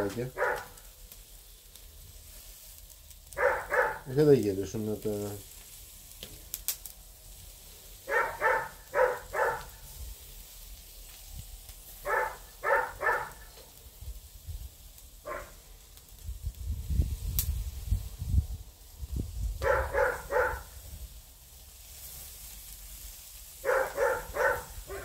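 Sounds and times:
skewers sizzling on a grill: 0.0 - 25.0
dog barking: 0.3 - 0.8, 3.4 - 4.1, 8.1 - 9.8, 12.0 - 13.6, 15.3 - 15.6, 19.6 - 20.7, 23.6 - 25.0.

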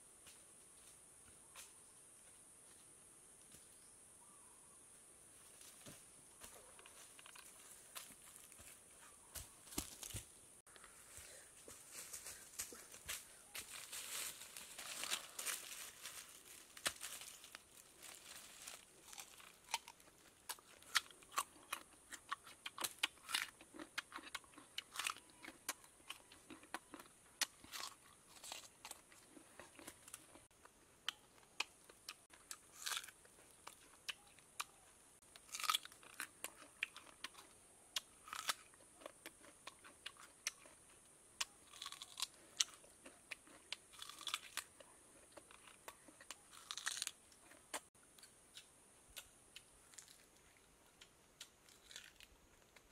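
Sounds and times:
fruit crunching being chewed: 6.6 - 7.7, 16.3 - 52.9.

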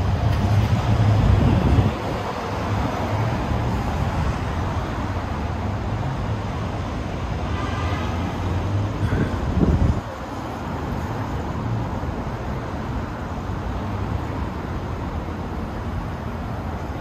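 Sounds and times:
city street traffic rumble: 0.0 - 17.0.

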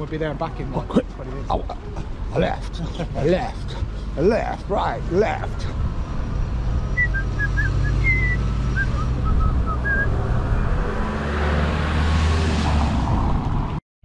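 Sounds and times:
road traffic: 0.0 - 13.8
car engine passing: 2.0 - 13.8
wind rumbling on microphone: 5.6 - 13.8
short high whistled chirps: 7.0 - 10.2.

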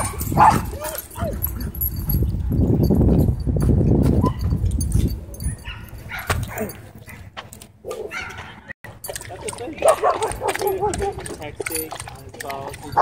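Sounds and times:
dog yelp: 7.8 - 8.5.

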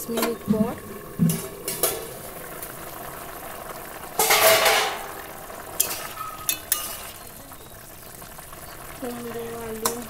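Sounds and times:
metal scraping in cookware: 4.2 - 5.1, 5.8 - 7.2.

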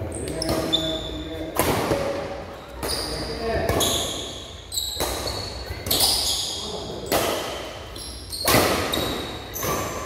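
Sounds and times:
rackets striking shuttlecock: 4.9 - 6.2, 8.4 - 10.0.

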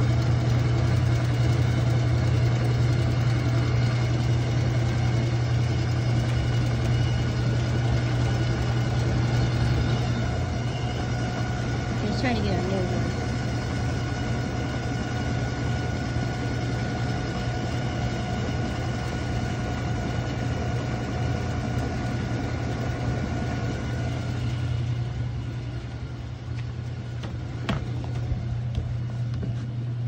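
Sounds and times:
washer motor hum: 0.0 - 30.0.

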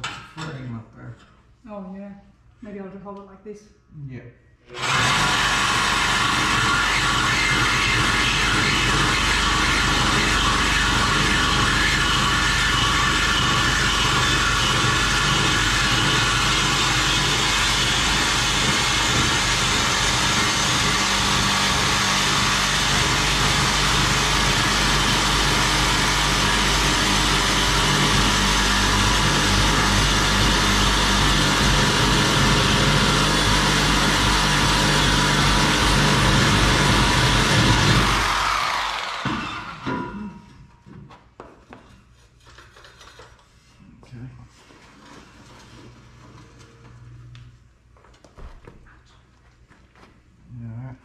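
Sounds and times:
reciprocating saw cutting metal pipe: 4.7 - 40.5.

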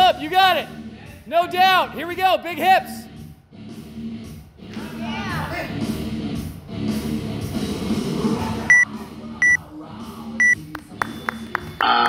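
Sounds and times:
rock music: 1.6 - 11.0
workout timer beeps: 8.7 - 9.6, 10.4 - 11.2.

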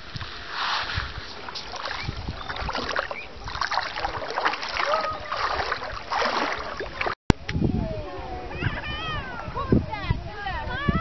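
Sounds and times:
sea water lapping and splashing: 0.0 - 7.2.

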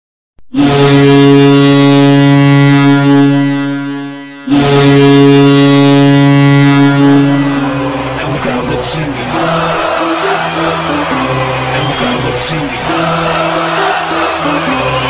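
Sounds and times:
low goal horn blasts: 0.5 - 15.0.

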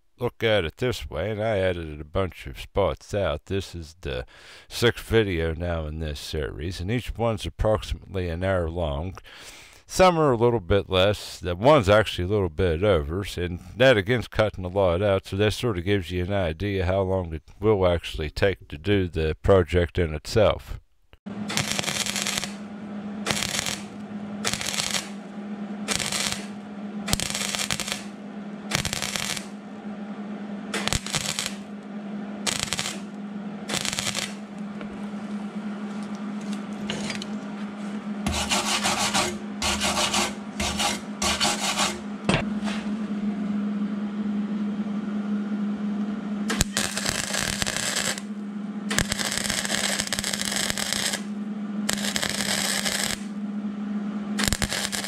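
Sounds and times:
welder low hum: 0.0 - 55.0
welder crackling bursts: 21.4 - 29.7, 30.6 - 34.9, 38.2 - 42.2, 46.5 - 51.3, 51.9 - 53.3, 54.4 - 55.0.

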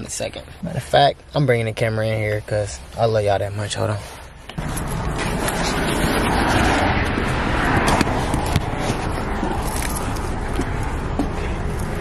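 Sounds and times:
steady low rumble: 4.2 - 12.0.

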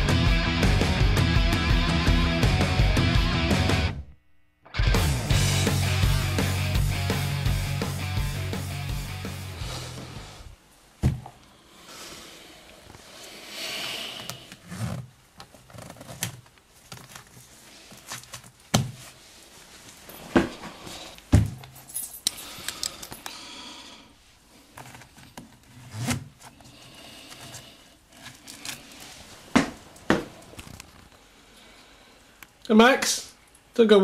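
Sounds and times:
knocks and thumps: 11.0 - 11.4, 21.3 - 21.6
soft rustling: 14.6 - 22.1.

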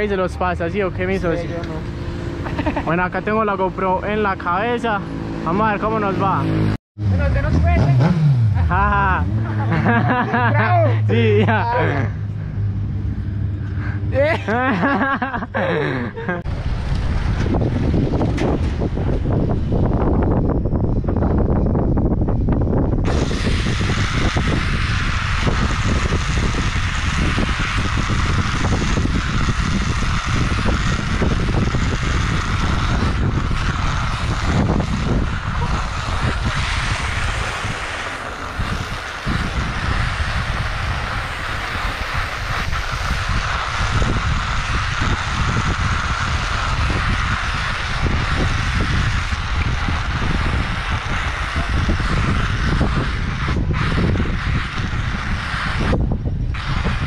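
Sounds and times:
wind buffeting microphone: 0.0 - 57.0
rolling road noise hiss: 23.1 - 57.0.

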